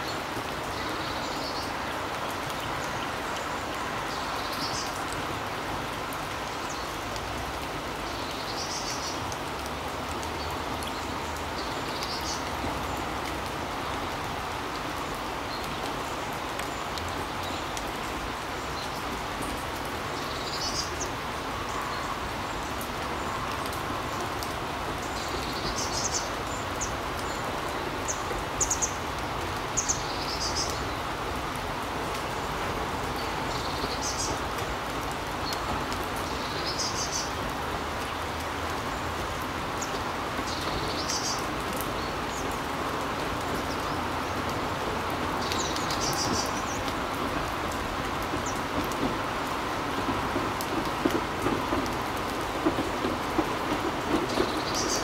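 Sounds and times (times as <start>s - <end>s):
birds chirping: 45.1s - 55.0s.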